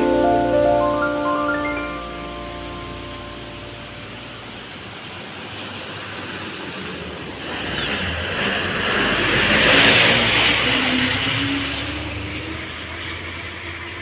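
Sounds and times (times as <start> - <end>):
bus diesel engine passing: 0.0 - 14.0.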